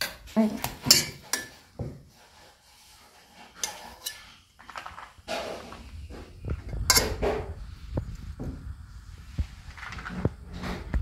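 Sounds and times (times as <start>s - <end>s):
spoon clinking against steel pot: 0.8s - 1.6s, 6.9s - 7.2s.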